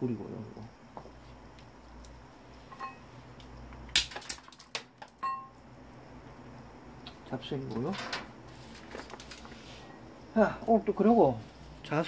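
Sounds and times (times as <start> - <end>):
ringing metal clink: 2.7 - 3.1, 5.2 - 5.6
metal parts clicking and clinking: 7.8 - 8.3.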